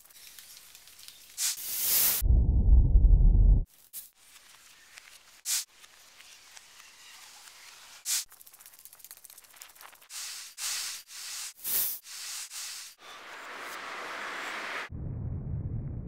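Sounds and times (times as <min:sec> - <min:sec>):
sharp hiss: 0:01.4 - 0:02.2, 0:05.5 - 0:05.7, 0:08.1 - 0:08.3, 0:10.1 - 0:13.0.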